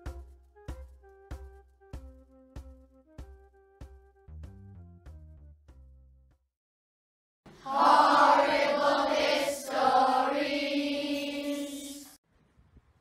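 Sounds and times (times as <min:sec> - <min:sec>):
choir singing long notes: 0:07.5 - 0:12.2.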